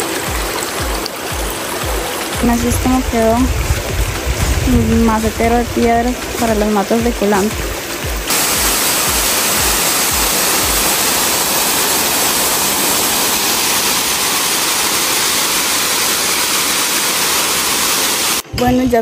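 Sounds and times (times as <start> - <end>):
faint bass beat music: 0.0 - 10.9, 18.4 - 19.0
waterfall rushing: 0.0 - 18.4.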